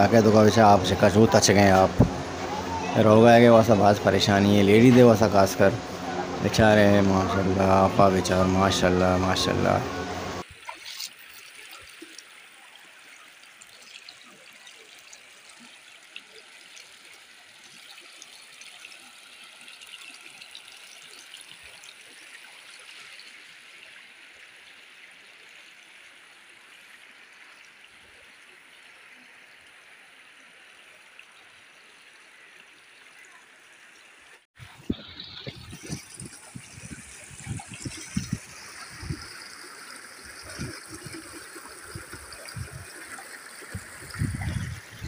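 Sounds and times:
floodwater rushing: 0.0 - 28.4, 31.5 - 45.0
faint small splashes: 10.3 - 34.0.

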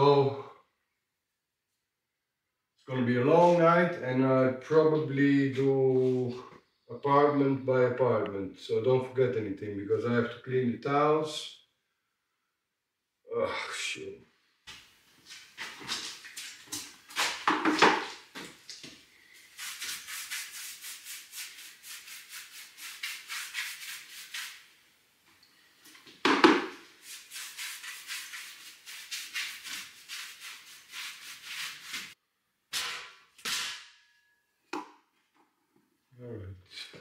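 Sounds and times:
scrubbing rough stone wall: 15.4 - 24.8, 26.0 - 32.2
loud knocks: 26.2 - 26.8.

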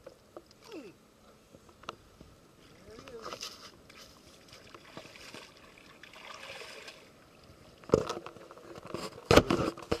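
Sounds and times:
fish splashing in shallow water: 3.9 - 7.9.

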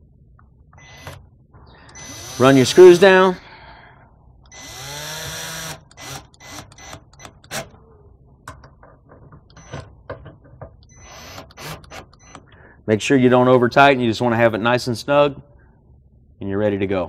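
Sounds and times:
cordless drill motor whine: 0.8 - 1.2, 1.8 - 3.1, 4.5 - 7.6, 10.9 - 12.4
drill trigger bursts and clicks: 0.8 - 1.2, 1.8 - 3.2, 4.4 - 7.7, 10.8 - 12.5.

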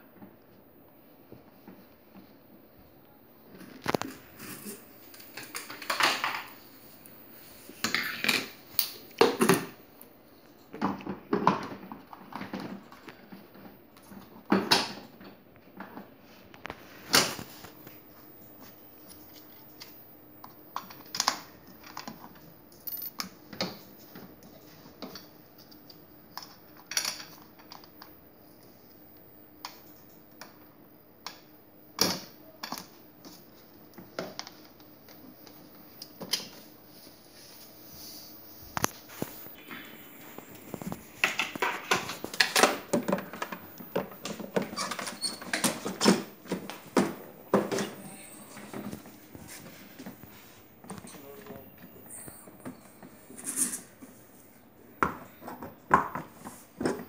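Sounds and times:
faint steady hum: 0.0 - 57.0.

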